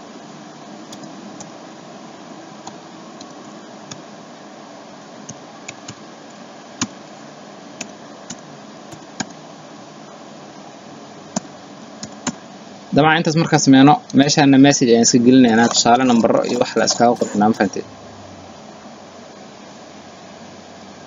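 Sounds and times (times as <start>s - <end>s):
steady background hiss: 0.0s - 21.0s
computer keyboard keystrokes: 7.8s - 9.4s, 11.4s - 12.4s.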